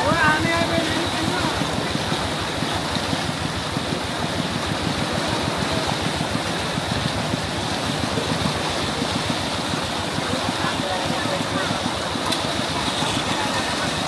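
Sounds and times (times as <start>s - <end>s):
fast-flowing river water: 0.0s - 14.0s.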